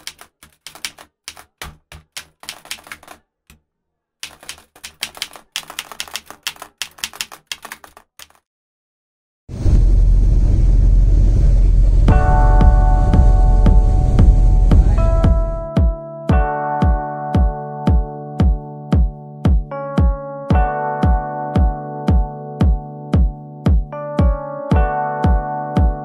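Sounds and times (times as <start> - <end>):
keyboard typing clicks: 0.0 - 3.6, 4.2 - 8.4
loud music with deep bass: 12.1 - 15.7.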